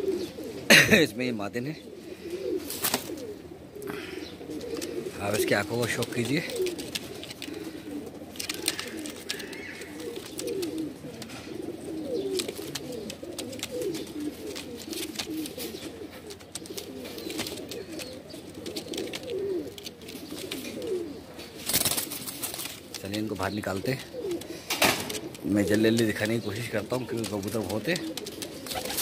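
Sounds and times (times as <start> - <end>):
pigeons cooing: 0.0 - 29.0.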